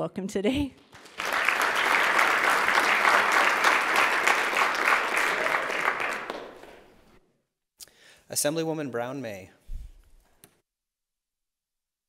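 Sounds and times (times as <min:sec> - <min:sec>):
crowd applauding: 0:00.9 - 0:07.1.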